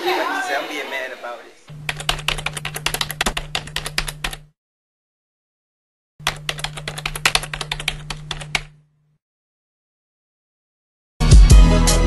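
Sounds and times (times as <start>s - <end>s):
low steady hum: 1.5s - 4.5s, 6.2s - 9.2s
rapid key clicks: 1.8s - 4.5s, 6.2s - 8.8s.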